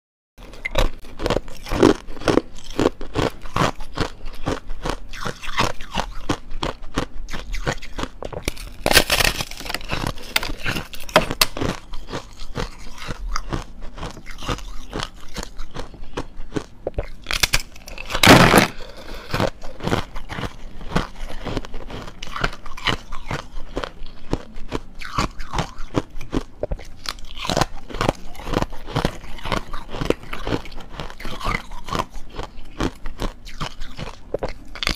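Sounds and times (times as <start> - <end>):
crunching frozen foam ice: 0.4 - 34.9.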